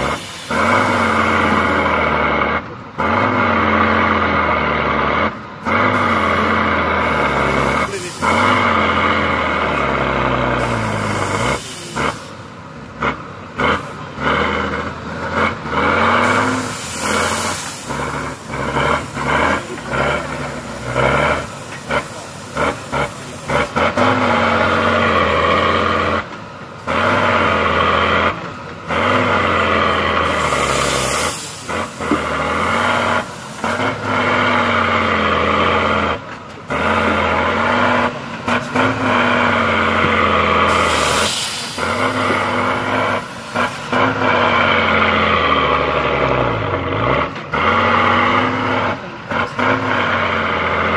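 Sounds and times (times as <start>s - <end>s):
truck diesel engine under load: 0.0s - 50.9s
air hiss bursts: 10.9s - 12.4s, 16.3s - 18.1s, 30.4s - 33.6s, 40.6s - 43.9s.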